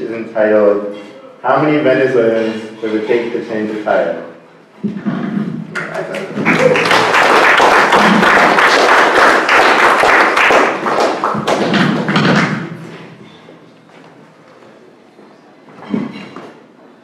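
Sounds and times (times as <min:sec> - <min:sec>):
audience applauding: 0:05.7 - 0:12.6.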